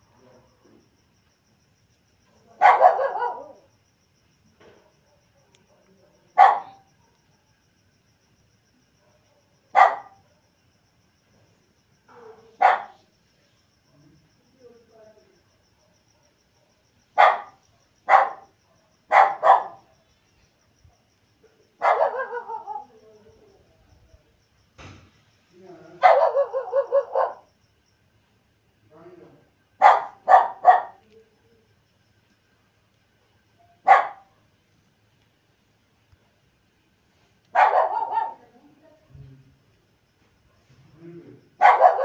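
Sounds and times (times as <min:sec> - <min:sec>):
dog barking: 0:02.5 - 0:03.7, 0:04.6 - 0:07.3, 0:09.0 - 0:10.5, 0:12.1 - 0:13.0, 0:15.8 - 0:20.0, 0:21.8 - 0:23.0, 0:26.0 - 0:27.5, 0:29.8 - 0:31.0, 0:33.6 - 0:34.5, 0:37.5 - 0:38.5, 0:41.6 - 0:42.0.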